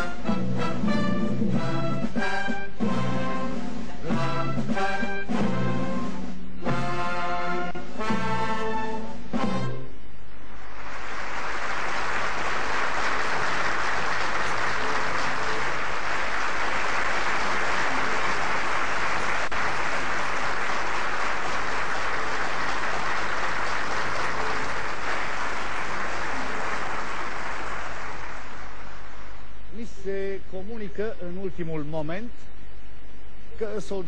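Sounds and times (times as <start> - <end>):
audience applauding: 10.6 - 29.2.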